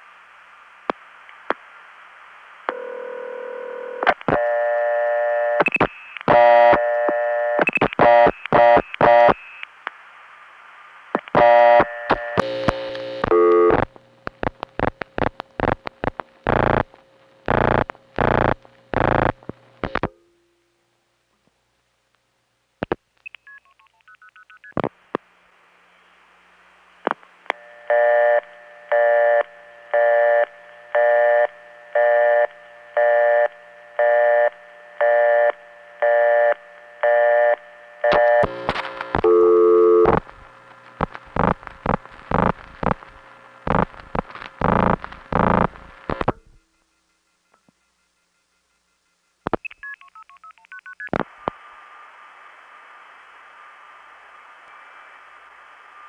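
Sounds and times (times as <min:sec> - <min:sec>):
telephone signalling tones: 0:27.6 - 0:38.5.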